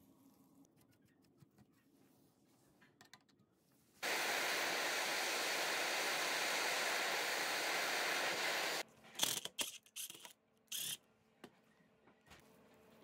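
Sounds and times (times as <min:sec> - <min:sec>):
blowtorch hissing: 0:04.0 - 0:08.8.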